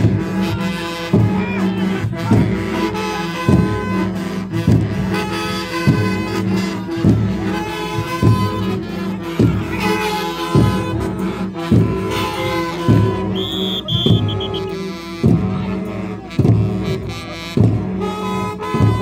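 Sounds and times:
drums beaten slowly: 0.0s - 19.0s.

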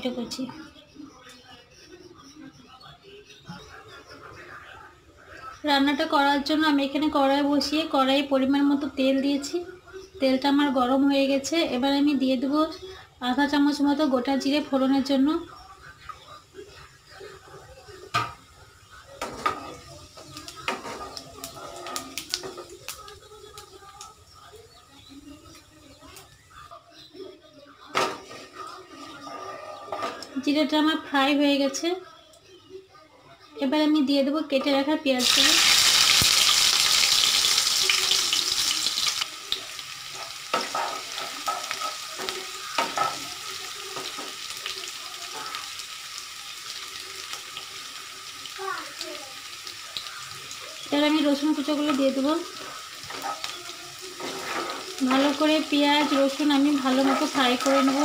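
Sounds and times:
seeds crackling in hot oil: 13.4s - 27.1s, 35.2s - 58.0s
spatula stirring against pan: 15.8s - 26.6s, 28.0s - 30.4s, 35.6s - 48.2s, 49.6s - 58.0s
wooden spatula scraping pan: 54.2s - 55.0s, 56.7s - 58.0s.

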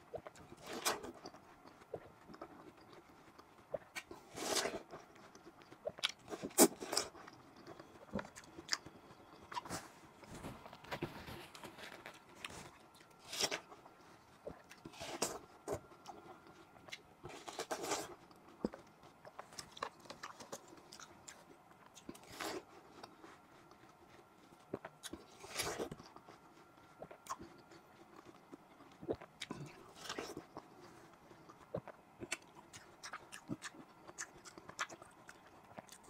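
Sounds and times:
juicy watermelon crunching: 0.2s - 36.0s.

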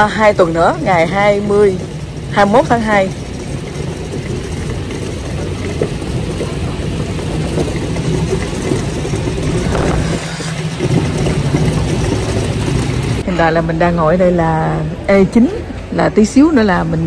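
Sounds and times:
moving walkway hum: 0.0s - 17.0s.

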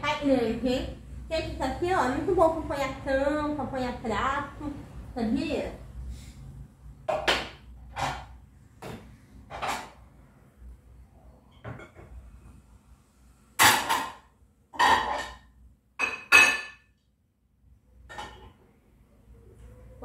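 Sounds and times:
plates knocking and clattering: 7.1s - 10.1s, 11.6s - 12.2s, 13.6s - 16.9s, 18.0s - 18.6s.

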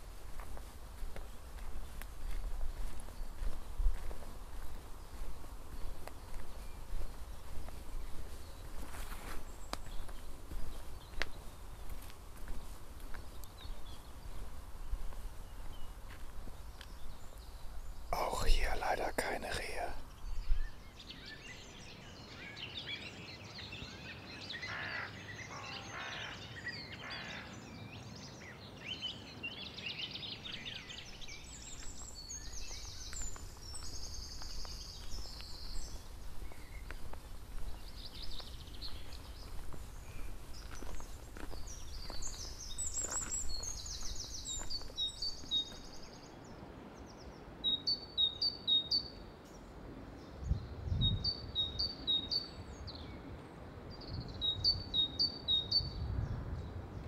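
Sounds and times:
songbirds singing: 0.0s - 57.0s.

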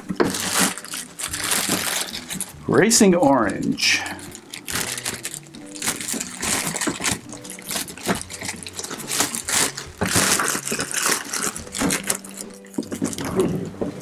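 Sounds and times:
plastic bag crinkling: 0.0s - 2.7s, 3.4s - 13.8s.

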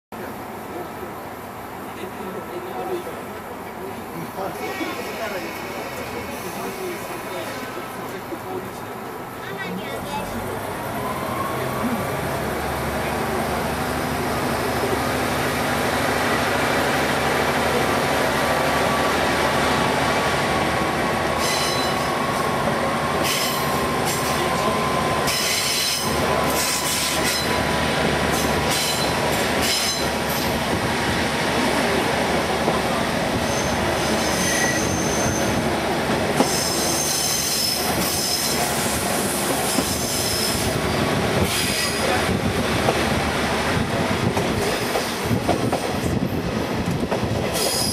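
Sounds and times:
train rumbling along: 0.2s - 47.9s
high-pitched wheel squeals: 21.4s - 22.1s, 33.4s - 35.6s, 36.4s - 38.6s.

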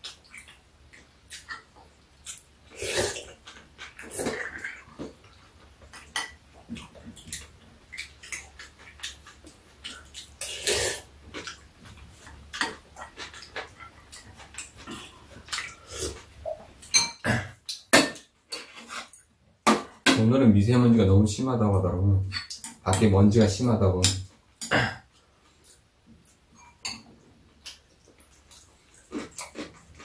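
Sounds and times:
slurping and chewing: 0.0s - 17.8s, 27.6s - 30.0s.

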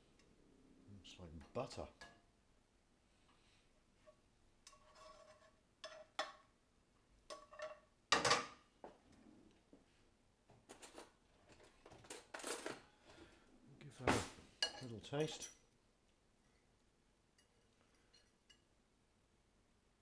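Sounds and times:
spatula scraping frying pan: 4.1s - 6.2s.

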